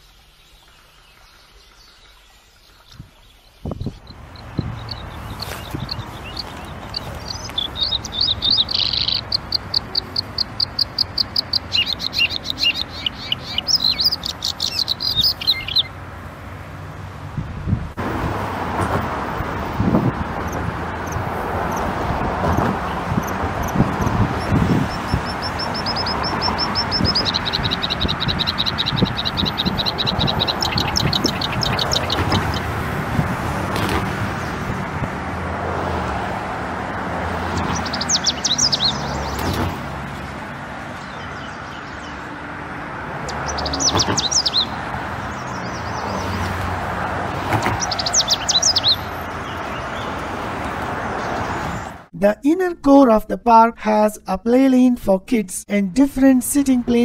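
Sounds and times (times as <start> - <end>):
birds trilling: 3.3 - 16.0, 22.6 - 32.8, 36.9 - 39.8, 43.1 - 52.0
road traffic: 3.6 - 53.4, 55.6 - 57.0.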